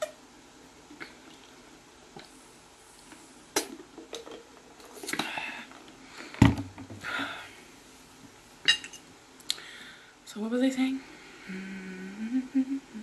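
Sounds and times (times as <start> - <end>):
person gulping drink: 0.9 - 2.3.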